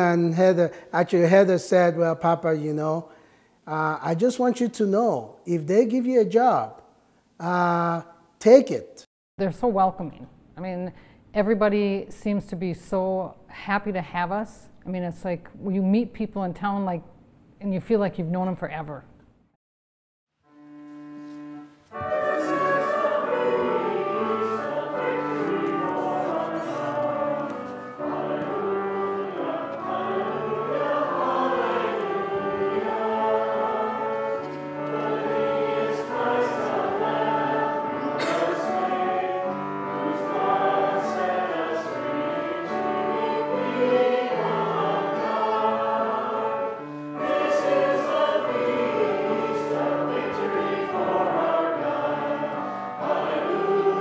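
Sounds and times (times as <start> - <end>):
instrumental accompaniment: 20.4 - 54.0
choir singing: 21.0 - 54.0.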